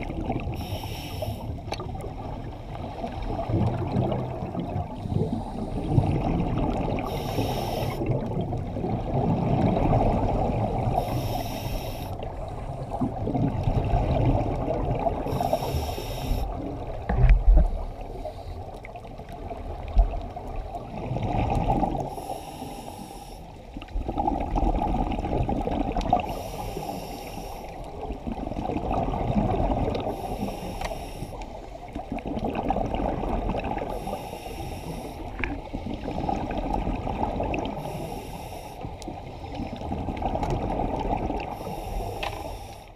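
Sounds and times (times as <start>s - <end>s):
bubbles gurgling: 0.0s - 0.7s, 1.8s - 11.1s, 12.2s - 15.7s, 19.0s - 22.1s, 23.9s - 26.4s, 27.9s - 30.3s, 31.9s - 34.0s, 35.3s - 38.0s, 39.6s - 41.8s
regulator hissing inhale: 0.5s - 1.6s, 5.0s - 5.9s, 7.0s - 8.1s, 10.9s - 12.3s, 15.3s - 16.6s, 22.0s - 23.6s, 26.2s - 27.9s, 30.0s - 31.8s, 33.9s - 35.4s, 37.8s - 39.6s, 41.5s - 42.9s.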